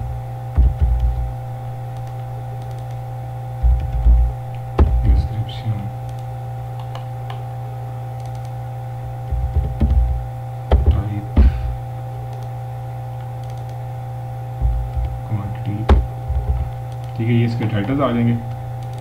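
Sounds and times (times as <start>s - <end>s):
low electrical hum: 0.0s - 19.0s
muffled keyboard keystrokes: 0.6s - 1.3s, 1.9s - 3.0s, 3.6s - 5.1s, 8.2s - 8.6s, 9.2s - 11.6s, 13.4s - 13.8s, 14.6s - 17.2s, 18.8s - 19.0s.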